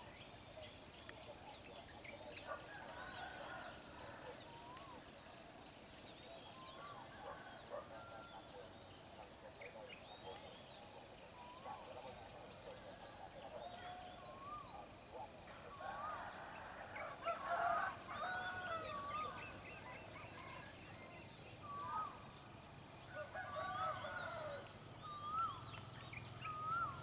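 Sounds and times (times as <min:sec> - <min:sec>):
birds whistling and chirping: 0:25.1 - 0:27.0.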